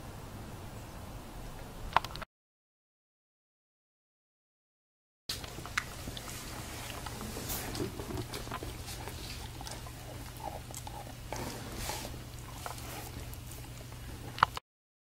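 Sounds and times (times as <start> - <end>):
steady low hum: 5.3 - 14.6
puppy breathy sounds: 6.0 - 14.5.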